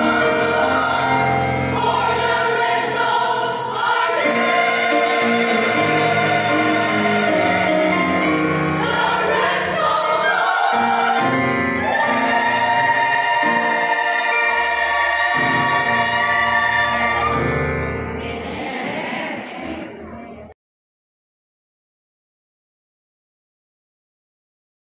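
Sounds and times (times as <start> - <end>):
women's choir singing gospel: 0.0 - 20.3.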